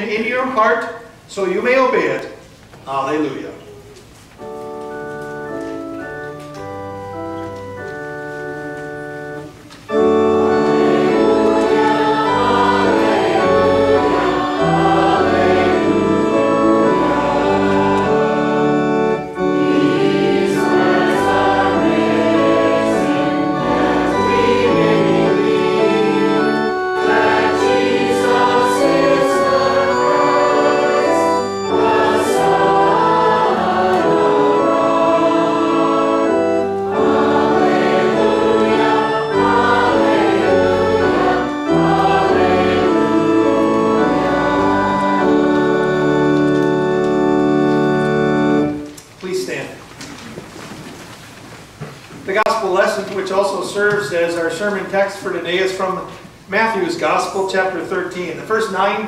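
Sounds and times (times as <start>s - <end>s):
organ playing chords: 2.9s - 50.4s
voices singing: 9.9s - 48.7s.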